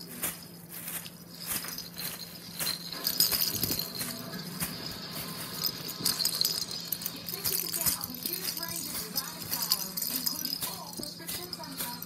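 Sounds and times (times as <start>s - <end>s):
light jingling: 0.0s - 12.0s.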